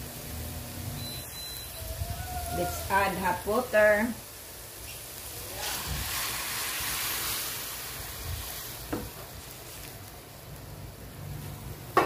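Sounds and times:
meat sizzling in wok: 0.0 - 12.0
water pouring into hot wok: 5.2 - 8.9.

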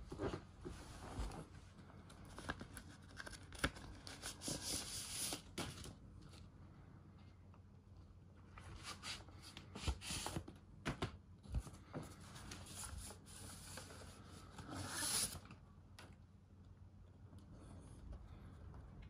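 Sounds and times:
paper sleeve rubbing and sliding: 14.6 - 15.4.

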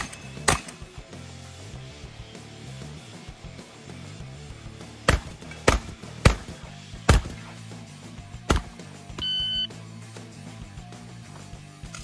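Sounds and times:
shotgun shots: 0.0 - 0.8, 5.1 - 7.6, 8.4 - 8.8
background music: 0.0 - 12.0
electronic shot timer beep: 9.2 - 9.7.

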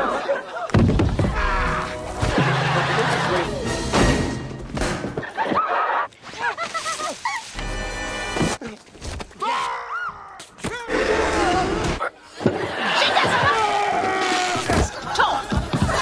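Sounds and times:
body thuds and crashes: 0.7 - 1.5
music: 1.2 - 4.8, 7.6 - 8.6.

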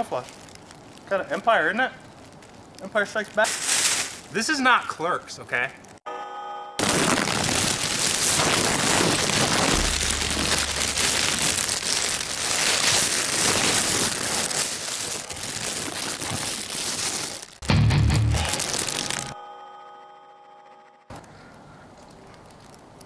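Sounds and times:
foil blanket crinkling: 0.0 - 4.8, 6.8 - 17.6, 18.3 - 19.4
low hum: 7.6 - 13.0.

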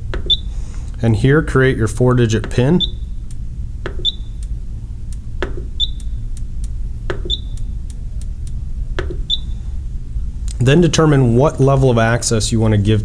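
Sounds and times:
dial clicking: 0.1 - 0.4, 2.2 - 9.5
short high beeps: 2.8 - 3.2, 4.0 - 4.4, 9.3 - 9.6.

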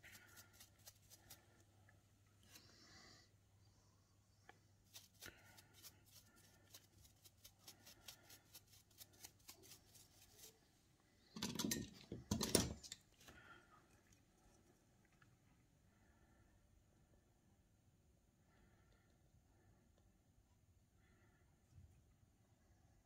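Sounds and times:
small brush scrubbing: 0.0 - 3.2, 4.3 - 10.9.

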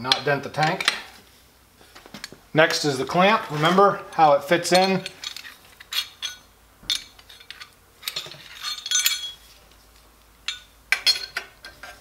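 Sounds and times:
metal clamp clinking on pipe: 4.1 - 9.4, 10.4 - 12.0.

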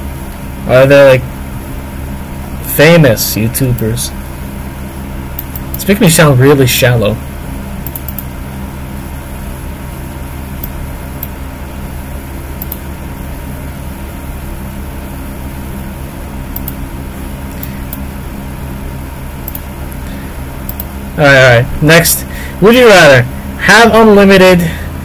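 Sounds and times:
low hum: 0.0 - 25.0
faint high ticks: 7.8 - 8.3, 12.6 - 12.8, 16.5 - 16.8, 19.4 - 19.6, 20.6 - 20.9.

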